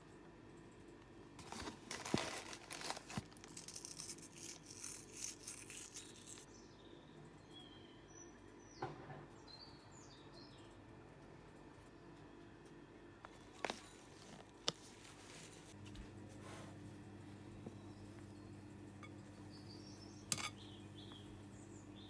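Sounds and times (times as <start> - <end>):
cardboard box rustling: 1.4 - 3.5
faint bird chirps: 5.9 - 10.9, 17.4 - 22.0.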